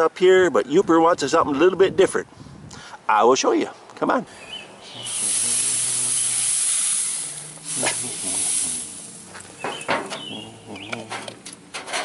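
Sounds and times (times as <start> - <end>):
aerosol spray hissing: 4.9 - 9.9.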